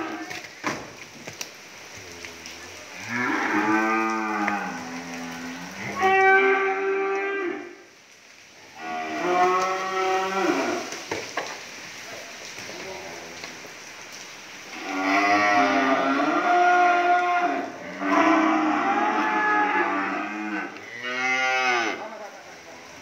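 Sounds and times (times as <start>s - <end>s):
cattle mooing: 2.2s - 7.7s, 14.7s - 22.1s.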